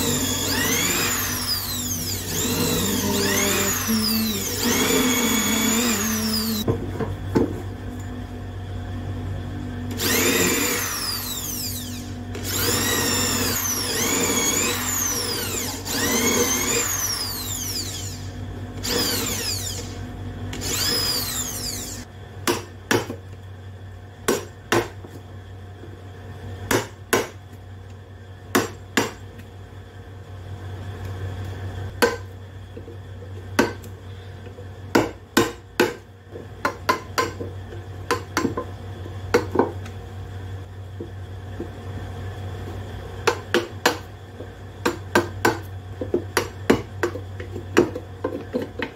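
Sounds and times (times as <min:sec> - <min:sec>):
electric drill boring into wood: 0:00.0 - 0:06.7, 0:09.9 - 0:22.1.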